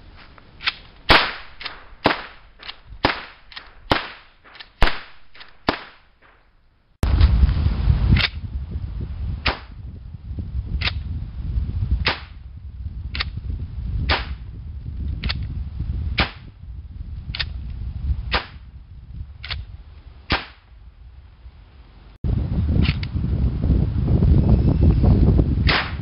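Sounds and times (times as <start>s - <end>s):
gun shots: 1.1s - 6.4s, 20.3s - 20.6s, 25.7s - 26.0s
low background rumble: 6.7s - 26.0s.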